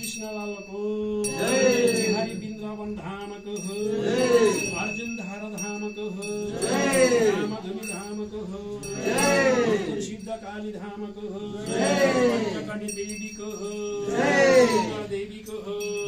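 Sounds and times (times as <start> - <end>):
hand bell ringing: 0.0 - 16.0
voices chanting: 1.0 - 2.5, 3.5 - 5.0, 6.1 - 10.2, 11.1 - 15.9.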